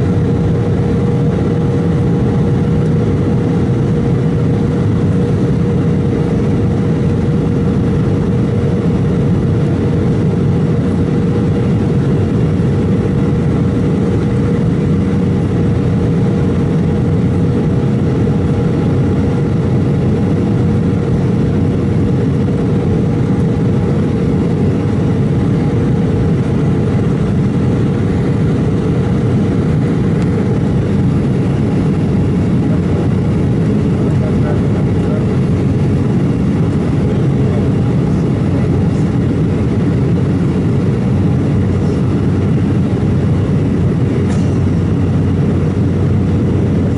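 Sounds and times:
airliner cabin engine rush: 0:00.0 - 0:46.9.

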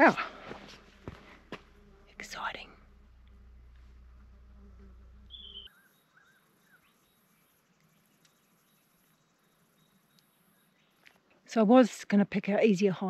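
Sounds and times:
low rumble: 0:00.3 - 0:05.7
high insect buzz: 0:00.4 - 0:10.3
short bird calls: 0:05.3 - 0:06.8.

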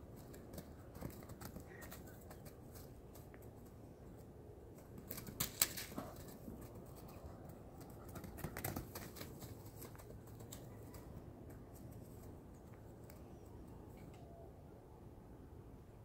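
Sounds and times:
hooves thudding on grass: 0:00.0 - 0:12.6.

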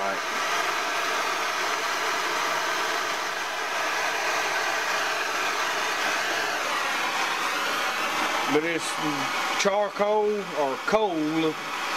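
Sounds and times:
steady rushing hiss: 0:03.6 - 0:11.9.

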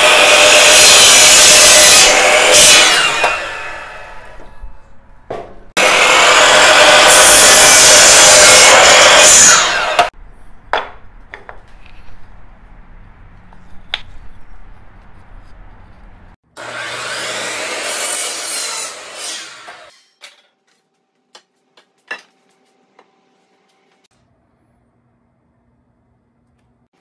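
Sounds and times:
power miter saw cutting wood: 0:00.0 - 0:04.6, 0:05.8 - 0:10.2, 0:16.5 - 0:20.1
wood blocks knocking: 0:10.7 - 0:11.7.

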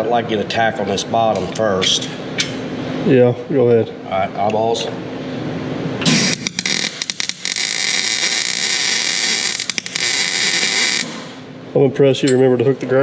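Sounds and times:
welding arc crackling: 0:06.0 - 0:11.5.

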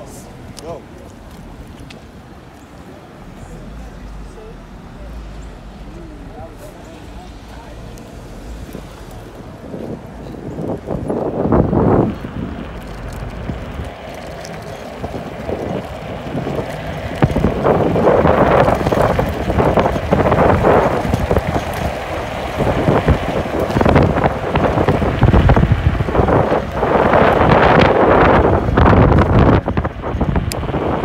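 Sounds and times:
wind buffeting microphone: 0:00.0 - 0:31.0.

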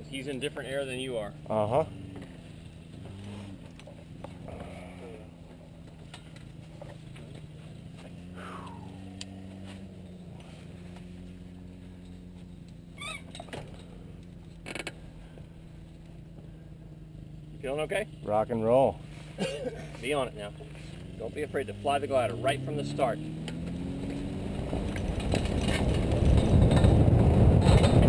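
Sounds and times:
distant aircraft engine idling: 0:01.3 - 0:21.1.

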